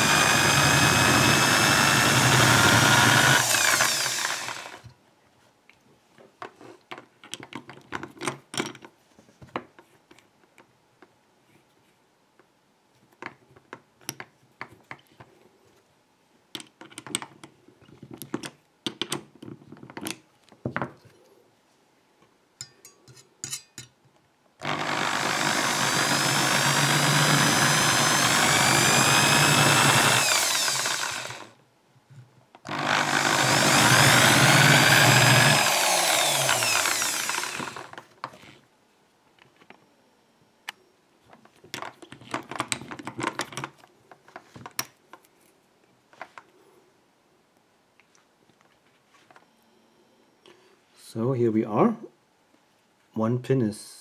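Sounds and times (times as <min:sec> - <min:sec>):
electric drill spinning: 0:00.0 - 0:04.9, 0:24.6 - 0:31.6, 0:32.7 - 0:38.1.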